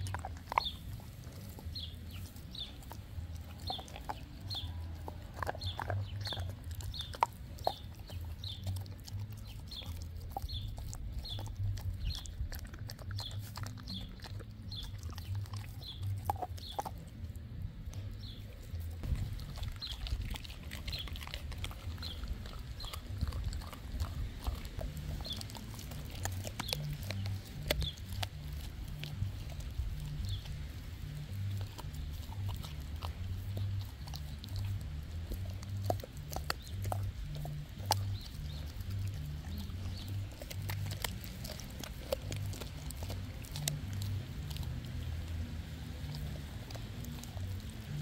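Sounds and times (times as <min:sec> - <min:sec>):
dog chewing and smacking: 0:00.0 - 0:48.0
low pulsing hum: 0:00.0 - 0:48.0
teeth clicking: 0:00.0 - 0:48.0
sharp crunches: 0:18.2 - 0:45.4.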